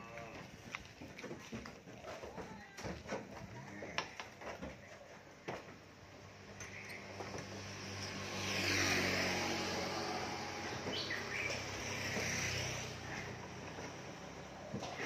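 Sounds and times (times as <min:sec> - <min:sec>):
motor vehicle passing: 0:06.2 - 0:15.0.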